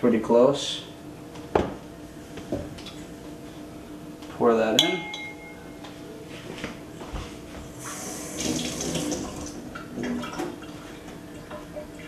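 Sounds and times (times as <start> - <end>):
glassware clinking: 4.8 - 5.8
faucet running into sink: 7.9 - 10.6.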